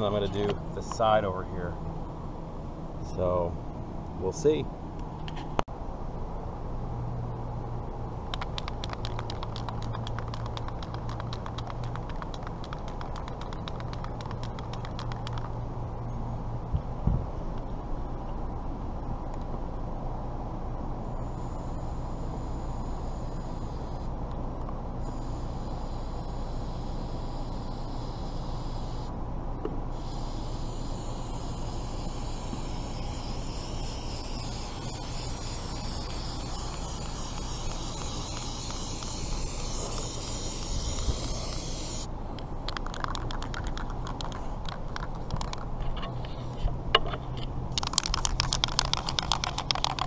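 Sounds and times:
aerosol can ball rattling: 0:08.3 - 0:15.5, 0:30.0 - 0:42.1, 0:42.7 - 0:45.7, 0:47.7 - 0:50.0.

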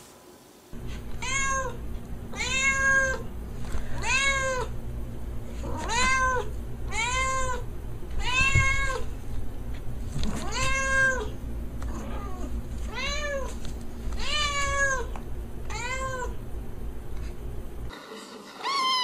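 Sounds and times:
cat meowing: 0:01.2 - 0:01.8, 0:02.4 - 0:03.2, 0:08.2 - 0:09.0, 0:10.4 - 0:11.3, 0:15.7 - 0:16.4, 0:18.6 - 0:19.0.

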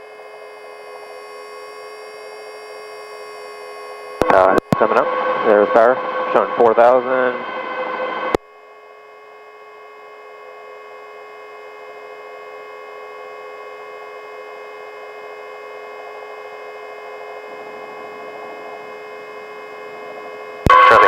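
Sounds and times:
helicopter whine and hum: 0:00.0 - 0:21.0
low rushing noise: 0:04.8 - 0:08.4.

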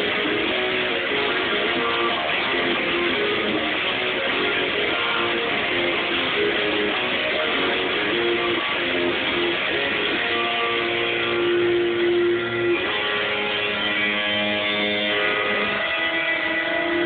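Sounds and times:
electric guitar long held notes: 0:00.0 - 0:17.0.

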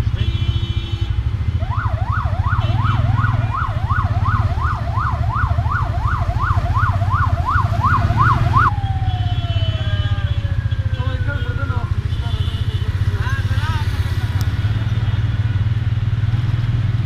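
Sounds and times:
siren yelping: 0:01.6 - 0:11.9.

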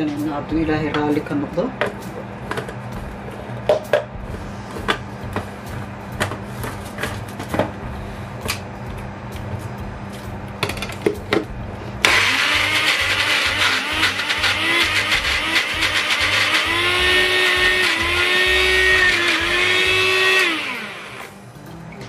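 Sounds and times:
blender motor grinding: 0:12.0 - 0:21.4.

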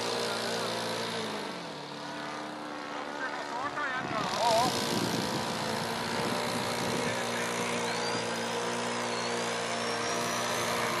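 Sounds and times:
model plane engine droning: 0:00.0 - 0:11.0
faint high whine: 0:06.0 - 0:11.0.

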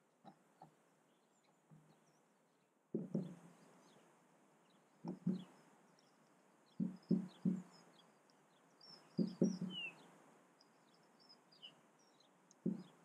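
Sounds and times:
faint high bird chirping: 0:00.6 - 0:13.0.

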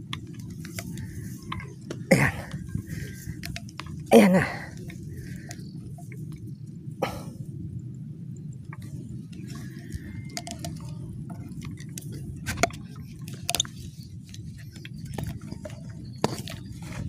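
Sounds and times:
camera handling rumble: 0:00.0 - 0:04.1, 0:08.8 - 0:17.0
handling clicks and knocks: 0:00.0 - 0:06.5, 0:08.7 - 0:17.0.

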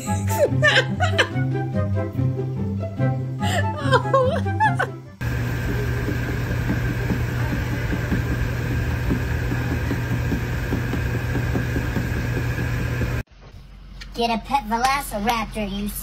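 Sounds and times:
electric fan humming: 0:05.2 - 0:13.3.

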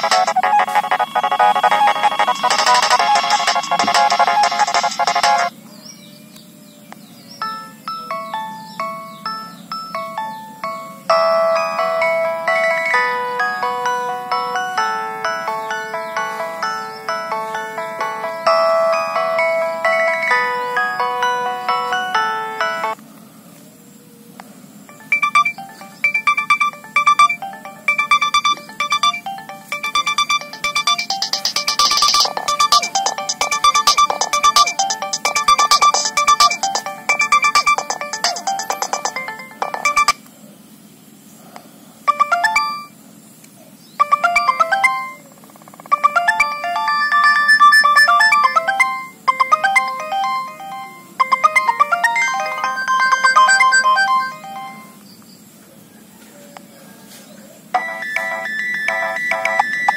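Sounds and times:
high synth notes repeating: 0:00.0 - 0:05.5, 0:07.5 - 0:23.0, 0:24.9 - 0:40.2, 0:42.1 - 0:42.9, 0:44.0 - 0:45.2, 0:45.8 - 0:55.0
polyphonic phone ringtone: 0:00.0 - 0:05.5, 0:07.4 - 0:23.0, 0:24.9 - 0:40.2, 0:42.1 - 0:43.0, 0:44.0 - 0:45.2, 0:45.9 - 0:55.0, 0:57.8 - 0:59.9.

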